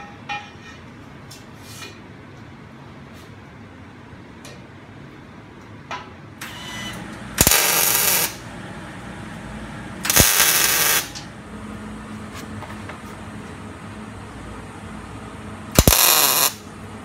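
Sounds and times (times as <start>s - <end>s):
welder arc bursts: 7.3s - 8.4s, 10.0s - 11.2s, 15.7s - 16.7s.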